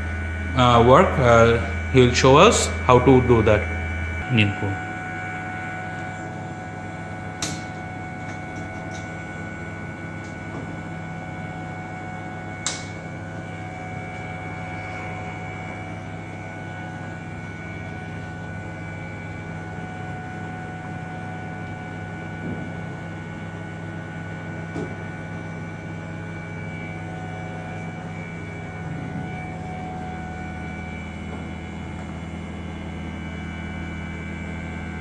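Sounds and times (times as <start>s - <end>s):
constant tones: 0.0s - 20.3s
laboratory equipment humming: 0.0s - 35.0s.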